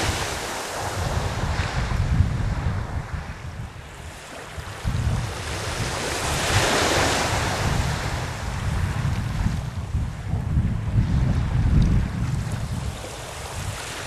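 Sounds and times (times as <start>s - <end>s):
sea waves breaking on beach: 0.0s - 14.0s
wind rumble on microphone: 0.0s - 14.0s.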